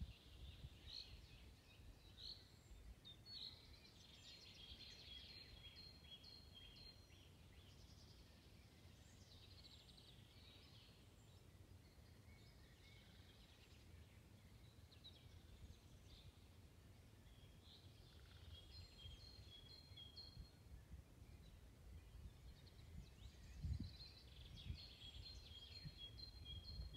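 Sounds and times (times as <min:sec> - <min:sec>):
wind rumble on microphone: 0:00.0 - 0:01.4, 0:20.2 - 0:26.9
songbirds singing: 0:00.0 - 0:26.9.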